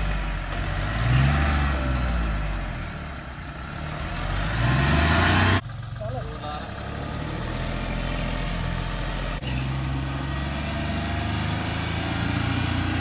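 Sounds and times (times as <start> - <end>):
suv engine running: 0.0 - 13.0.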